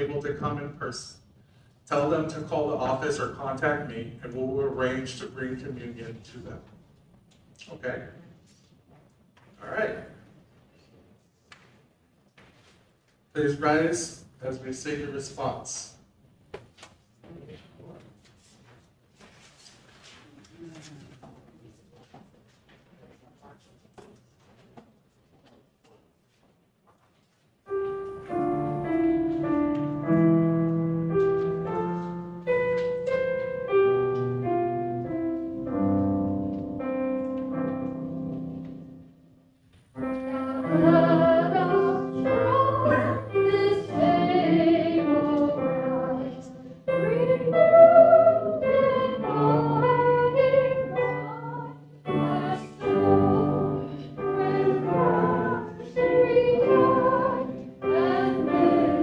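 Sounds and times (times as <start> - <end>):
keyboard playing chords: 27.7 - 39.2, 40.0 - 59.0
congregation singing: 27.8 - 33.4, 40.0 - 59.0.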